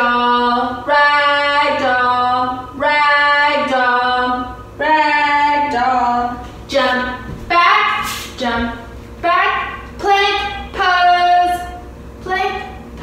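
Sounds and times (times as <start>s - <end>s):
woman singing unaccompanied: 0.0s - 12.7s.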